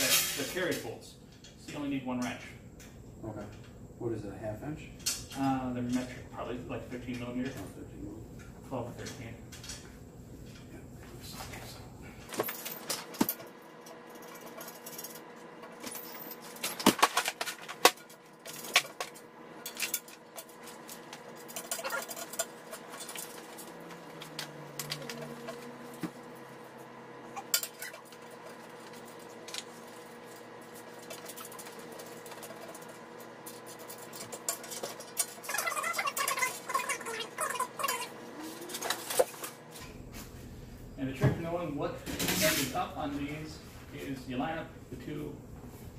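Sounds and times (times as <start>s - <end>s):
metal parts clinking and rattling: 0.0s - 1.6s, 12.2s - 26.0s, 27.4s - 38.0s.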